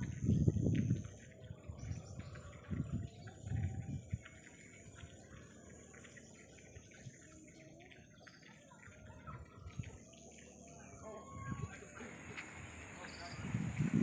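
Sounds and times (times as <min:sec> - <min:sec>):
wind rumble on microphone: 0:00.0 - 0:05.7, 0:09.1 - 0:10.0, 0:11.2 - 0:14.0
small birds chirping: 0:00.0 - 0:14.0
high insect hum: 0:09.7 - 0:14.0.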